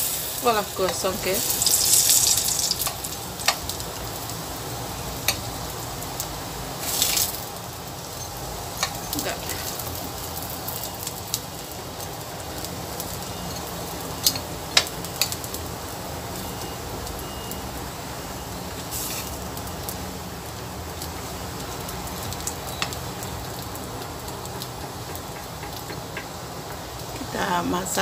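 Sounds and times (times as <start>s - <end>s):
banana slices sizzling in oil: 0.0s - 28.0s
utensil knocking pan: 24.5s - 27.0s.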